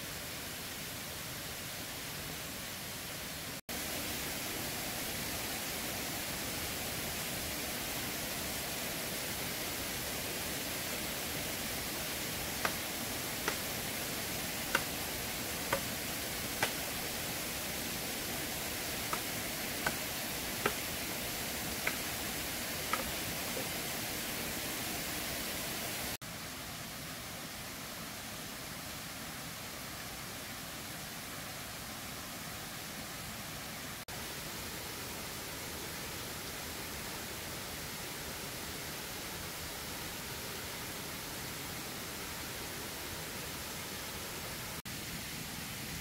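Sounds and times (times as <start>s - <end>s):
waterfall rushing: 3.7s - 26.2s.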